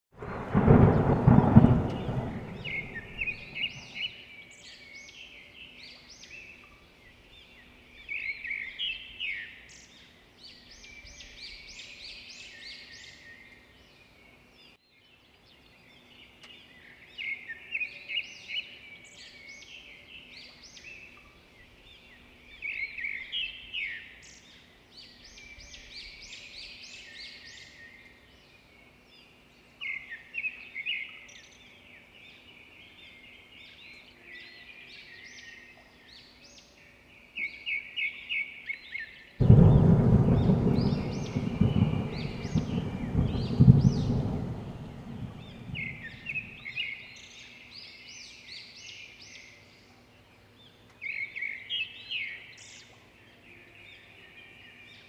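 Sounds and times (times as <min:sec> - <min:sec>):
loud low rumble: 0:00.2 - 0:03.8, 0:39.4 - 0:46.6
birds chirping and trilling: 0:00.2 - 0:55.0.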